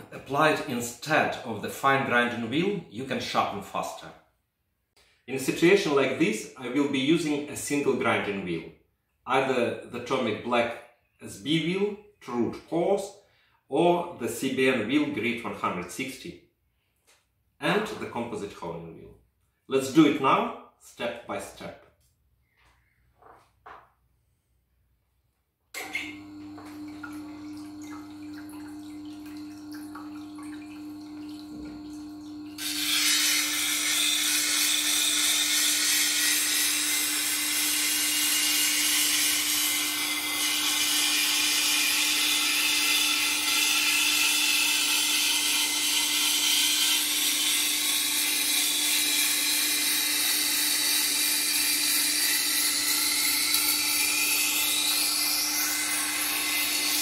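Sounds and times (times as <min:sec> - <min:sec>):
sharpening machine motor humming: 0:25.8 - 0:57.0
knife grinding on wheel: 0:32.6 - 0:57.0.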